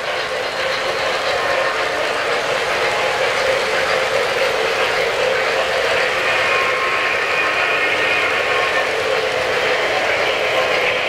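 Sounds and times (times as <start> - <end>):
model train wheel clatter: 0.0 - 11.0.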